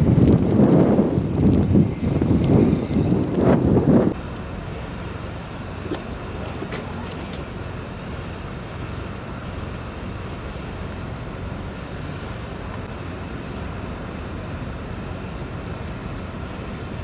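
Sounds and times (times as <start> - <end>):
truck engine rumble: 0.0 - 17.0.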